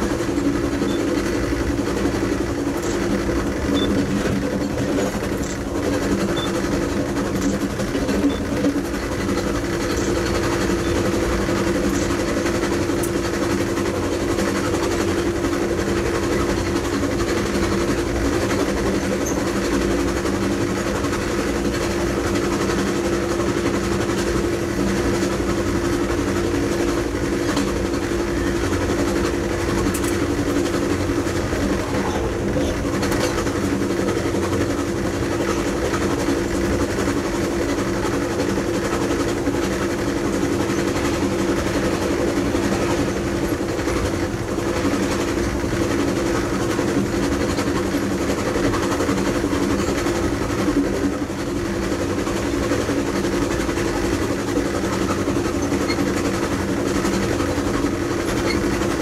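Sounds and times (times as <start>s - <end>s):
locomotive engine rumble: 0.0s - 59.0s.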